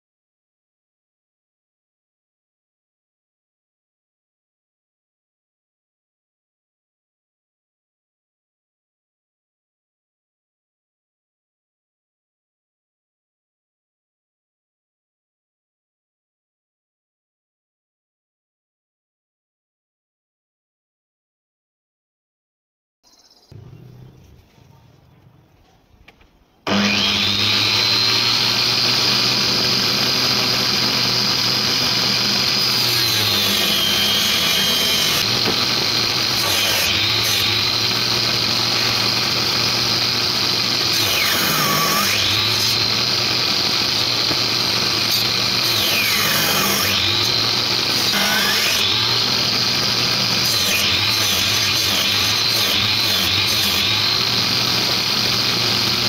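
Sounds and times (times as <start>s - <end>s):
saw blade whining cutting board: 26.6s - 56.0s.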